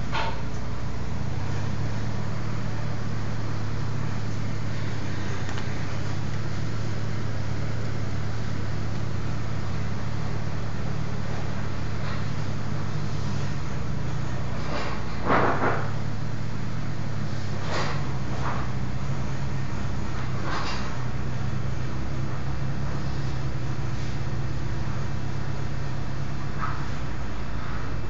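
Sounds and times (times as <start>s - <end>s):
low hum: 0.0s - 28.0s.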